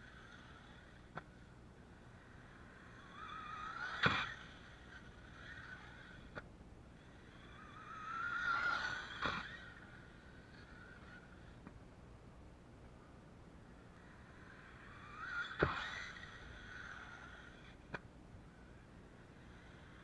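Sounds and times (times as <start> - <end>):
electric motor whining: 2.1 - 6.4, 7.0 - 11.6, 14.0 - 17.9
toy car hitting ramp: 3.2 - 5.0, 7.6 - 9.8, 14.9 - 18.0.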